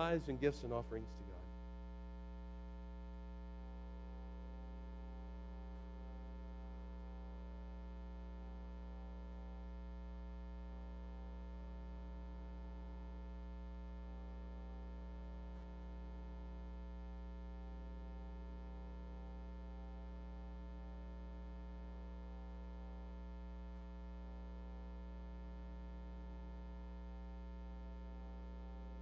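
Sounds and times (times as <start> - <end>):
steady low hum: 0.0 - 7.4.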